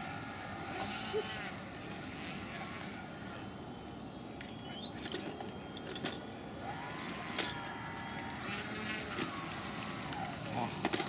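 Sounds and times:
model plane motors running: 0.0 - 3.7, 4.6 - 11.0.

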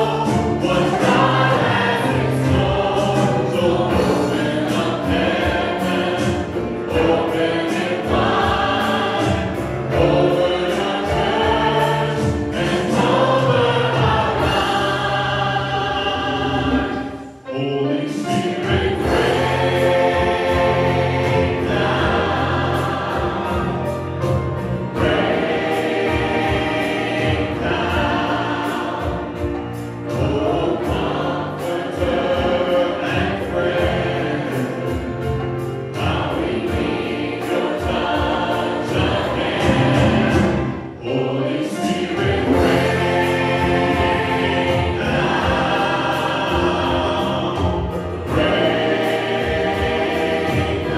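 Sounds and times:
live band with beat and bass: 0.0 - 15.6, 18.3 - 41.0, 41.9 - 50.9
singers and choir singing gospel: 0.0 - 50.9.

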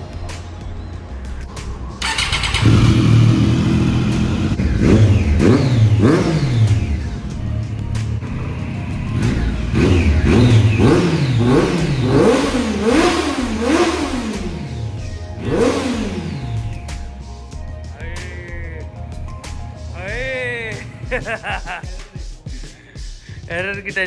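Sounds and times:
motorcycle engine revving: 2.0 - 17.2.

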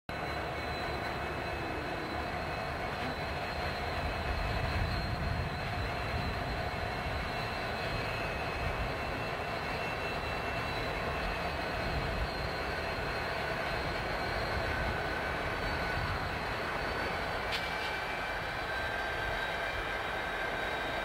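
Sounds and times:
diesel locomotives passing: 0.1 - 21.0.

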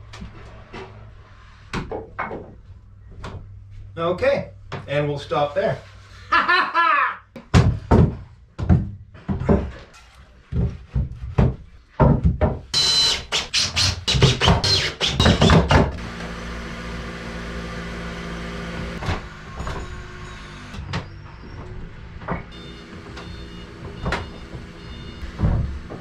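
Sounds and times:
cordless drill driving screws: 12.8 - 15.8.

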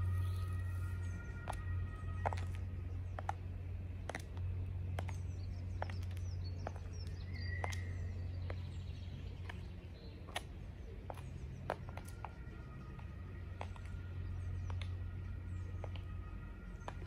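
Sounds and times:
birds chirping: 0.0 - 17.0
low background hum: 0.0 - 17.0
heels clicking on stone: 1.4 - 3.4, 4.0 - 8.6, 15.8 - 17.0.

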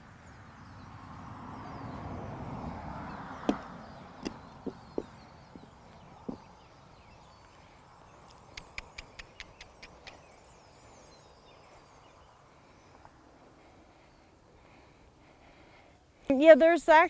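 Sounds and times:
hooves knocking on wood: 3.4 - 6.5
sharp clicks: 8.5 - 10.2.

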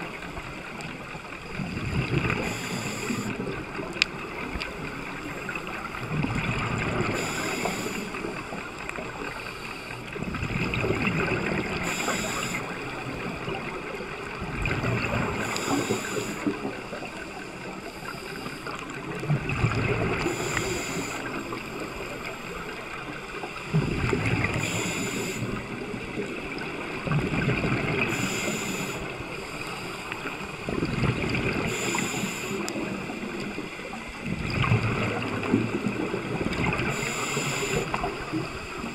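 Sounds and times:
exhaled bubbles rumbling underwater: 0.0 - 38.9
regulator inhalation hiss: 2.3 - 3.4, 7.0 - 8.4, 11.8 - 13.2, 15.4 - 16.6, 20.2 - 21.5, 24.5 - 25.6, 28.1 - 30.1, 31.6 - 32.8, 36.9 - 38.8.

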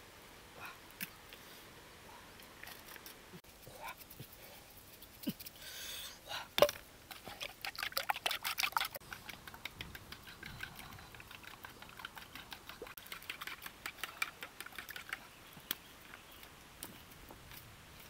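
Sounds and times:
utensil clicking against bowl beating eggs: 9.2 - 15.2.

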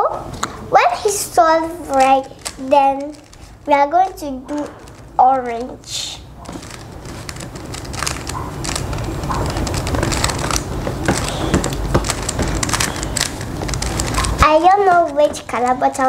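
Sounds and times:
low handling rumble: 0.3 - 15.6
puzzle cube clicking: 1.3 - 15.3.

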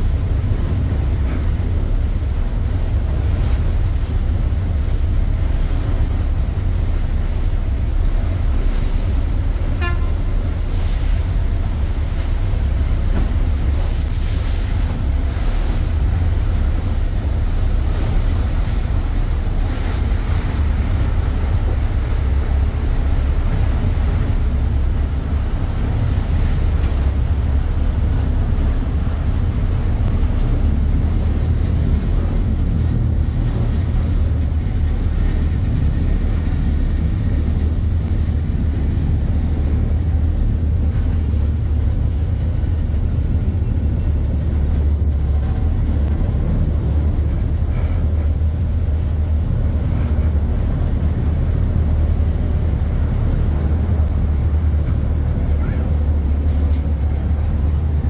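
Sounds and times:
churning water: 0.0 - 58.0
diesel engines rumbling: 0.0 - 58.0.

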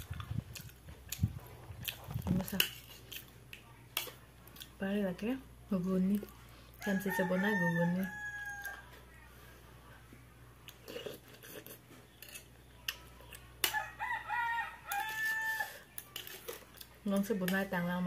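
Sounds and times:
rooster crowing: 6.8 - 9.0, 13.7 - 15.8.

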